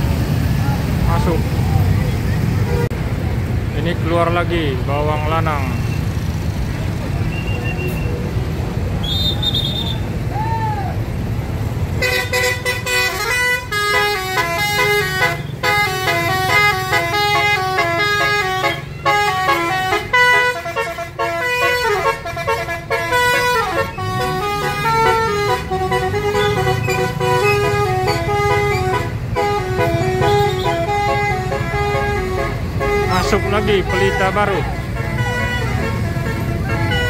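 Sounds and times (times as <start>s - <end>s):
bus engine running: 0.0s - 37.0s
air horns playing melodies: 12.0s - 37.0s.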